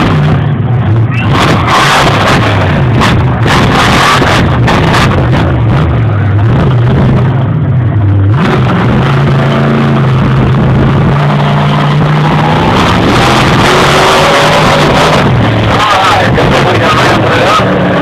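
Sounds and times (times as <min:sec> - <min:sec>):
monster truck engine revving: 0:00.0 - 0:18.0.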